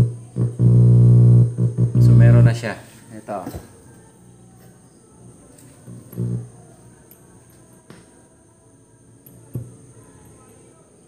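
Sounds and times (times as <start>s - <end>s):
thin high whine: 0.0s - 3.5s, 4.3s - 7.6s
amplifier hum and hiss: 0.0s - 10.8s.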